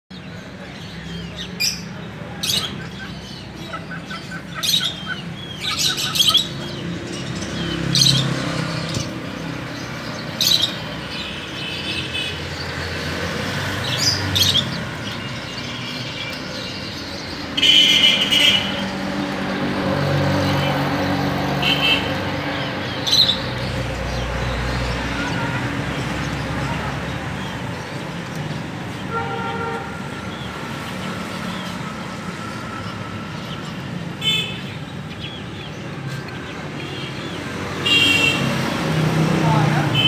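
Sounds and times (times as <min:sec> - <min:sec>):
finches calling: 0:02.4 - 0:12.3.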